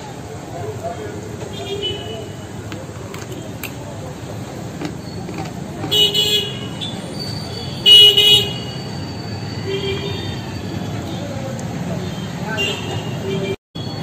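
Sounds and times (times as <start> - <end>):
background traffic: 0.0 - 14.0
vehicle horn honking: 5.9 - 7.0.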